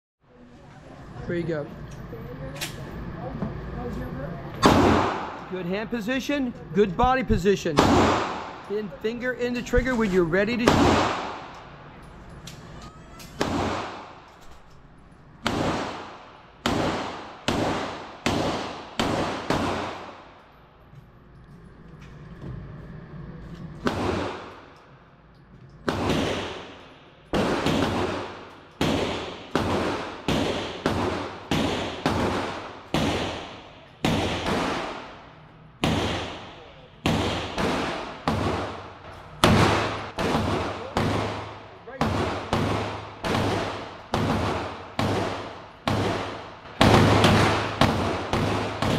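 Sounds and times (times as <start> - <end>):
handgun shots echoing indoors: 4.6 - 5.5, 7.8 - 8.7, 9.9 - 11.7, 13.2 - 14.8, 15.4 - 20.5, 23.8 - 24.8, 25.7 - 48.9.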